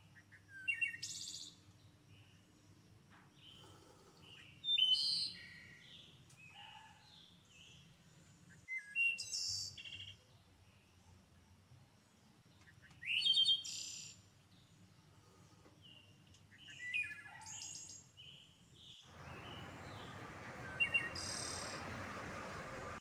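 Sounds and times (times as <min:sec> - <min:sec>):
birds chirping: 0:12.6 - 0:23.0
steady hiss: 0:19.1 - 0:23.0.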